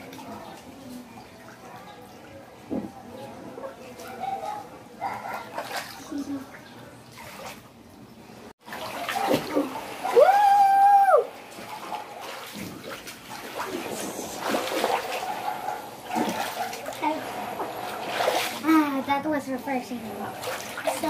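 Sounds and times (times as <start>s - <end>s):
water splashing in paddling pool: 3.4s - 7.8s, 8.6s - 19.2s, 20.0s - 21.0s
child crying out: 10.0s - 11.3s.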